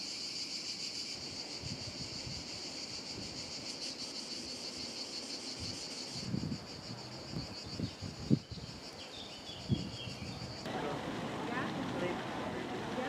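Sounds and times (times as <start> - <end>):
insects chirring: 0.0 - 10.8.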